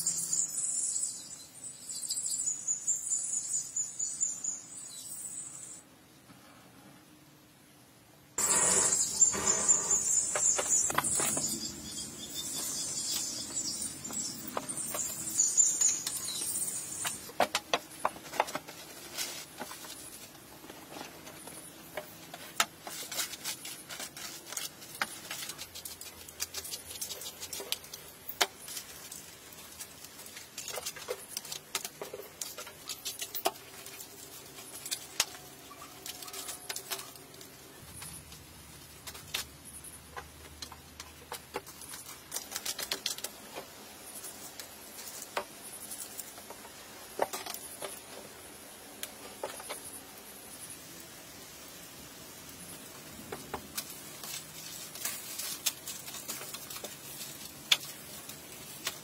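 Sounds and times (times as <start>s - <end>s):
loud hiss: 8.4s - 13.8s
wood fire crackling: 8.4s - 59.0s
aluminium foil crinkling: 9.3s - 50.7s, 52.4s - 59.0s.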